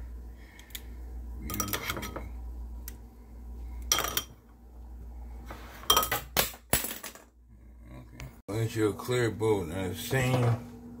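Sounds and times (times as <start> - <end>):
metal spoon clinking ceramic bowls: 1.5 - 2.2.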